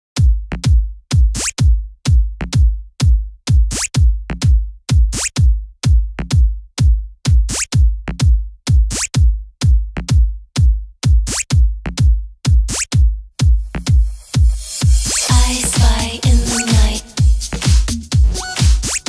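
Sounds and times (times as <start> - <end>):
heavy kick drum beat: 0.2 - 19.0
electronic dance music: 13.4 - 19.0.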